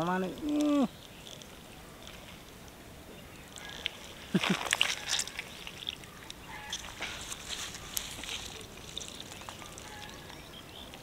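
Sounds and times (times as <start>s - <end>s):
hands squelching in wet mud: 3.6s - 11.0s.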